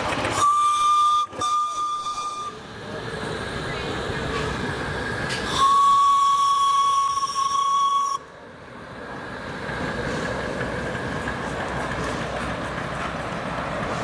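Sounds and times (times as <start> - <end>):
steam locomotive hissing: 0.0 - 14.0
steam whistle blowing: 0.3 - 2.6, 5.4 - 8.3.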